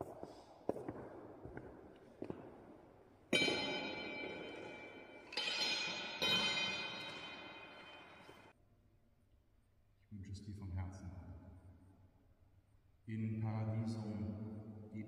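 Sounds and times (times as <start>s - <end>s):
metal bell ringing: 3.4s - 8.5s.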